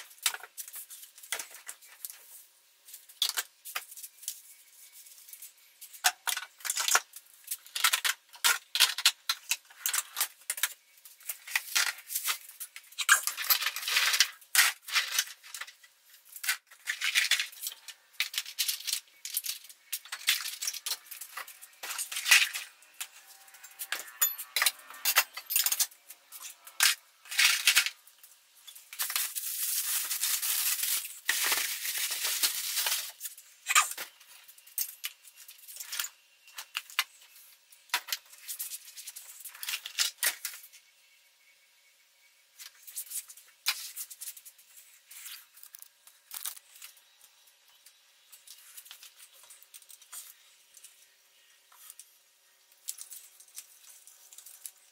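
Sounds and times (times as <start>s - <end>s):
metal tools clinking and rattling: 7.6s - 15.8s, 16.4s - 28.0s.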